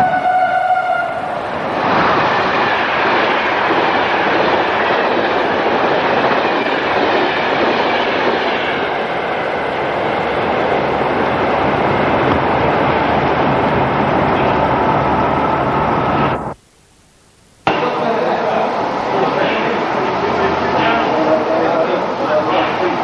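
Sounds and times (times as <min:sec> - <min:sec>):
steam whistle: 0:00.0 - 0:02.2
steam escaping: 0:01.2 - 0:09.2.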